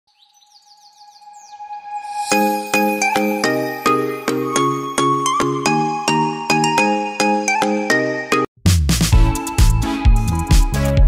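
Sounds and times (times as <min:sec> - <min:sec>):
upbeat jingle music: 0:01.9 - 0:08.5, 0:09.1 - 0:11.0.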